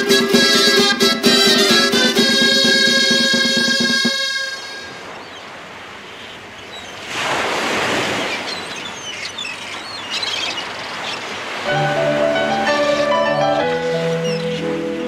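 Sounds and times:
instrumental music: 0.0s - 5.0s, 11.7s - 15.0s
sea surf: 0.0s - 15.0s
short high bird calls: 12.4s - 15.0s.

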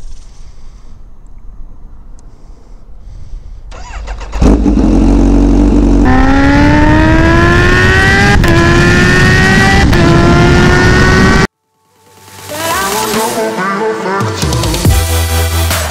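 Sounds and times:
motorcycle engine accelerating: 3.8s - 11.5s.

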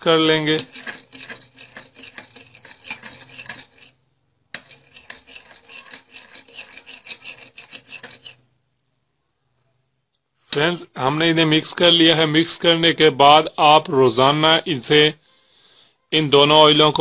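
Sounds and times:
spoon scraping container: 0.0s - 8.5s.

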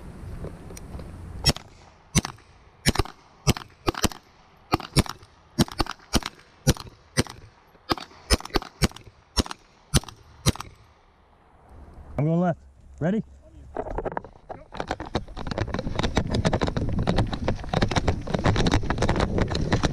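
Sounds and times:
pistol gunshots: 1.4s - 11.0s.

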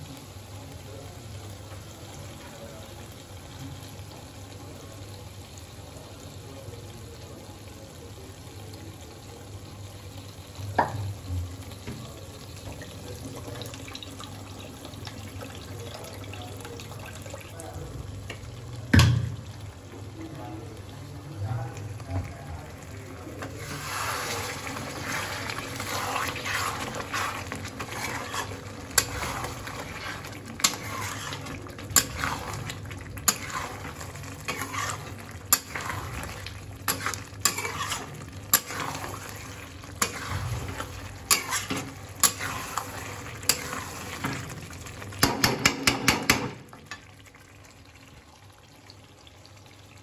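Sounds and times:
gravy sizzling: 0.0s - 50.0s
metal spatula scraping a pan: 23.4s - 44.3s.

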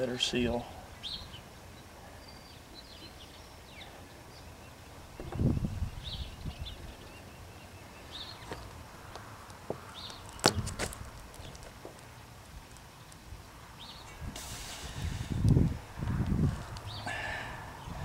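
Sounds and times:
small birds chirping: 0.0s - 14.3s, 15.5s - 18.0s
low bump: 5.1s - 6.4s.

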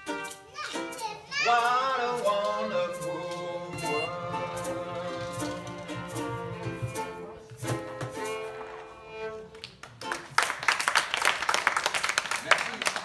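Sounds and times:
acoustic guitar: 0.0s - 10.3s
violin: 0.0s - 10.5s
audience applause: 8.6s - 13.0s.

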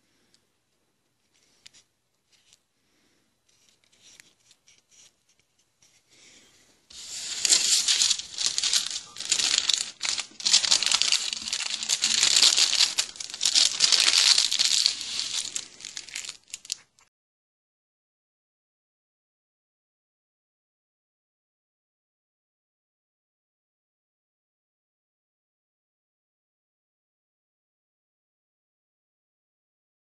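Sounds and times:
thin sheet crinkling and tearing: 6.9s - 17.0s.

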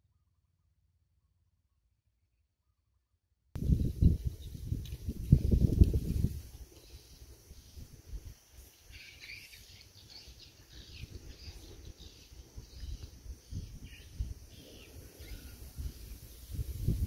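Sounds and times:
small birds chirping: 3.6s - 17.0s.

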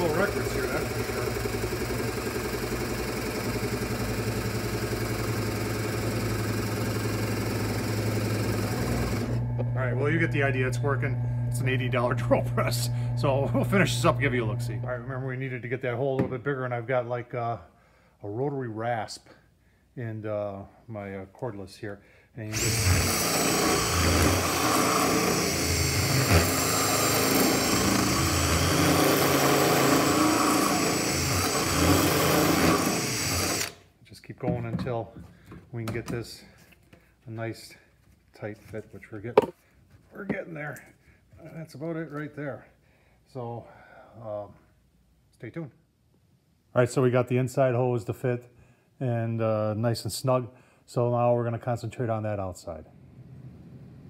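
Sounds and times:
drill press boring into wood: 0.0s - 14.9s, 22.5s - 33.8s
rasp grinding wood: 22.6s - 33.7s.

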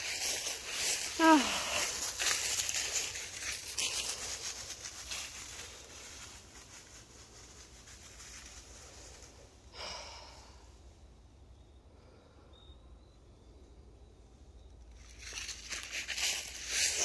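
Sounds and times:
rustling and crackling: 0.0s - 9.7s, 14.9s - 17.0s.

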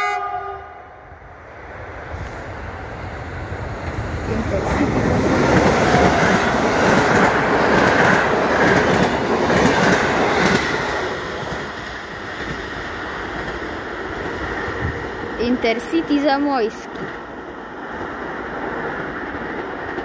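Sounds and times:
train wheels rumbling over rail joints: 1.6s - 16.1s.

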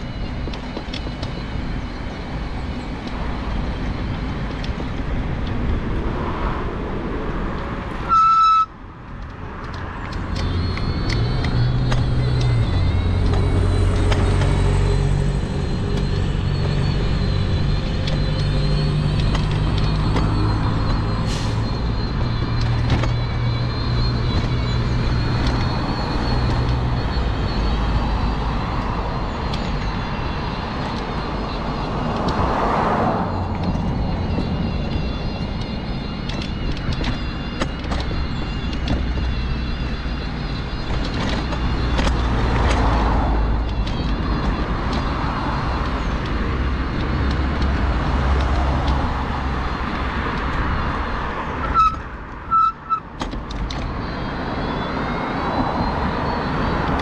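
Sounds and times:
bus diesel engine droning: 0.0s - 57.0s
road traffic: 0.0s - 57.0s
vehicle horn toot: 8.0s - 8.8s, 51.6s - 53.0s.

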